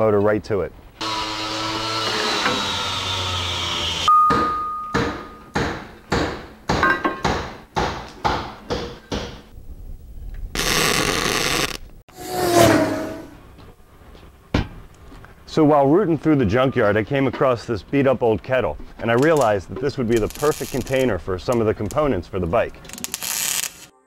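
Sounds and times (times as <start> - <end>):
angle grinder cutting steel: 1.0 - 4.1.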